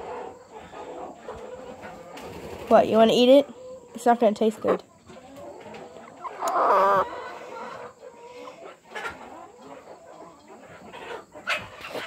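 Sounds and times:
chicken squawking: 5.3 - 9.3.

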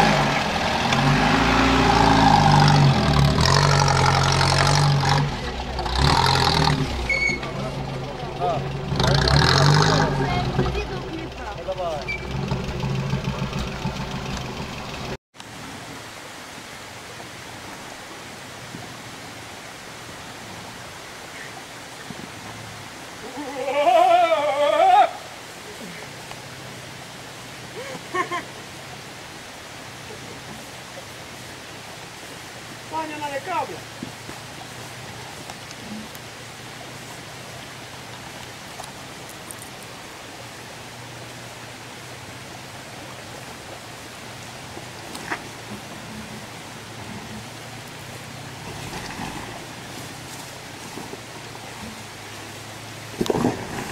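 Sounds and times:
faint vehicle engine hum: 0.0 - 15.2.

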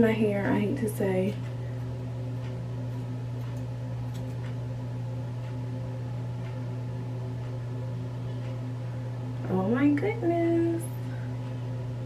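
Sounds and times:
low electrical hum: 0.0 - 12.0
hair-cutting shears snipping: 2.4 - 4.6.

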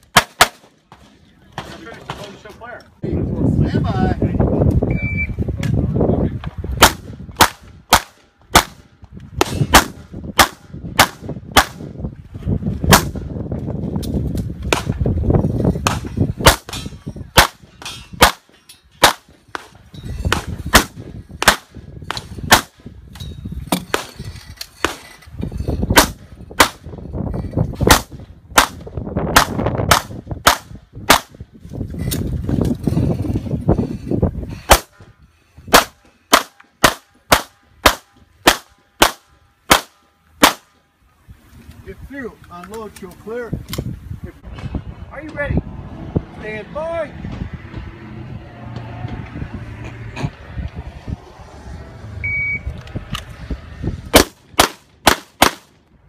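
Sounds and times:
pistol shots: 6.8 - 8.8, 9.4 - 11.8, 19.0 - 19.7, 20.3 - 21.7, 35.7 - 40.7, 54.1 - 55.7.

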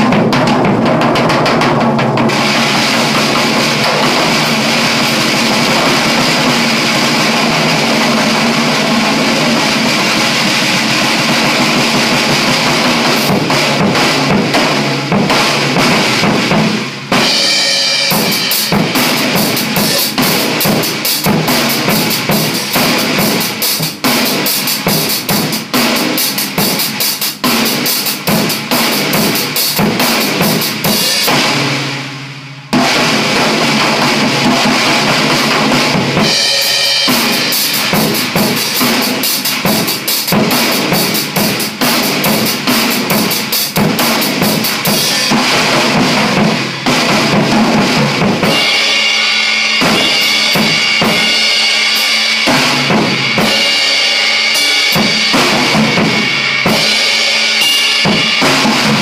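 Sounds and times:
bass drum: 0.0 - 31.8, 32.7 - 48.8, 49.8 - 51.5, 54.9 - 57.2
low tuned snare drum: 0.0 - 32.1, 32.7 - 53.9, 54.6 - 59.0
drum kit groove: 0.0 - 59.0
cymbals: 2.2 - 59.0.

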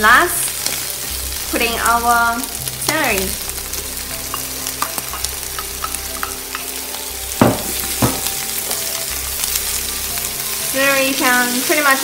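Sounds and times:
food sizzling in oil: 0.0 - 12.0
spatula scraping and knocking wok: 2.8 - 9.9.

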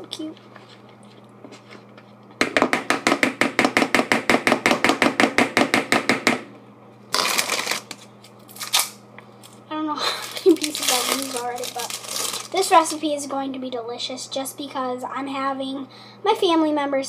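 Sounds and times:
plastic crinkling: 7.1 - 9.0, 10.2 - 13.0
plastic wrappers rustling: 7.2 - 9.0, 10.2 - 13.0.

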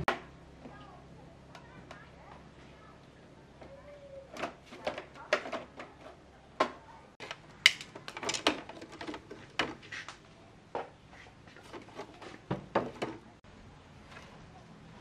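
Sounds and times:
hard objects knocking and clinking: 6.6 - 9.8.

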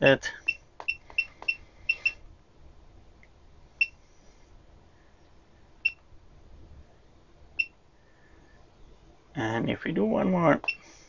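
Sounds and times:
electronic keypad beeps: 0.4 - 2.2.

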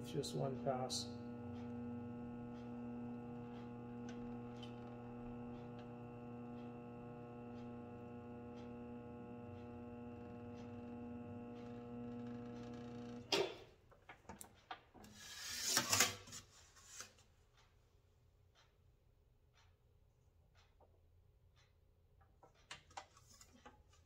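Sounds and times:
bead roller motor humming: 0.1 - 13.3.

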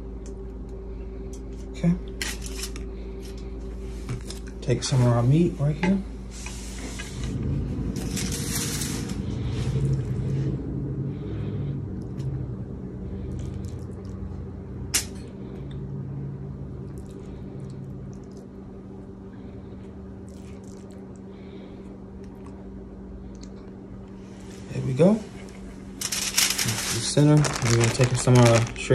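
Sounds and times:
steady low hum: 0.0 - 28.9.

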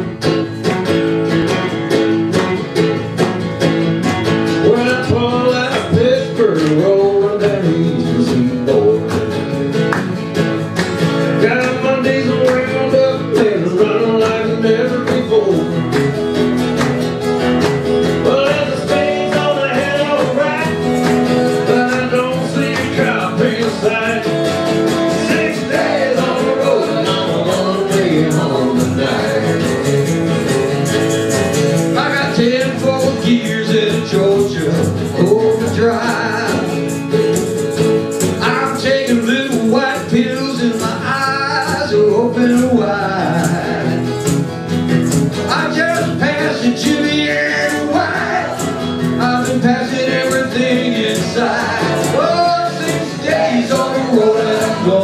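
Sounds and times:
acoustic guitars strumming: 0.0 - 55.0
group of voices singing: 18.1 - 29.9, 45.8 - 55.0.

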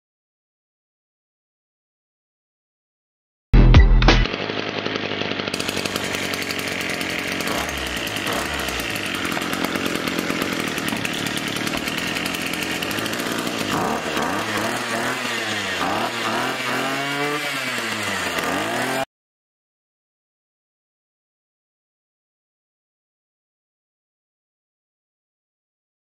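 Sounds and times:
two-stroke engine revving: 4.1 - 19.1.

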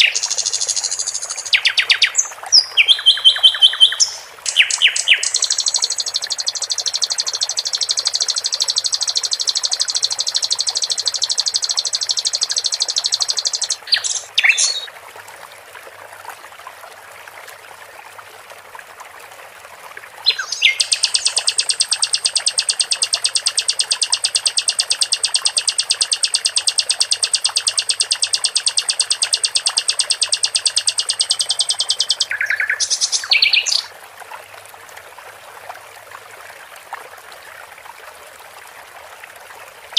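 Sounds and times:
running water trickling: 0.0 - 39.9
bird trilling high notes: 3.0 - 14.9, 20.6 - 33.9.

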